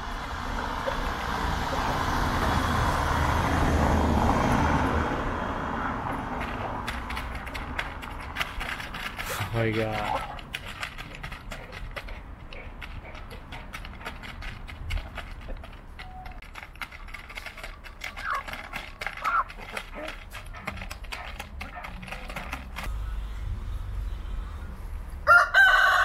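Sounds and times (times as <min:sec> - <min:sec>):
hens pecking kibble in plastic bag: 0:06.4 - 0:22.9.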